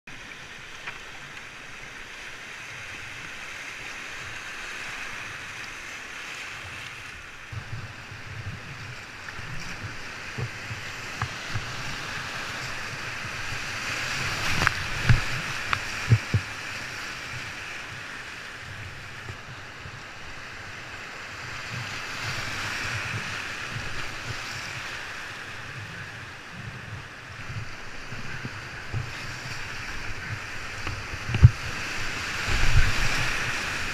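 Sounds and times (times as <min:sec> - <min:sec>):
rushing whitewater: 0:00.1 - 0:33.9
wind buffeting microphone: 0:07.3 - 0:33.9.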